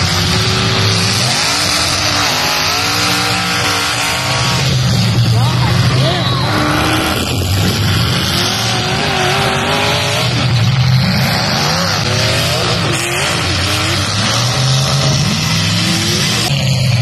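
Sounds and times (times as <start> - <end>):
car engines revving hard: 0.0 - 17.0
tyres skidding on dirt: 0.0 - 17.0.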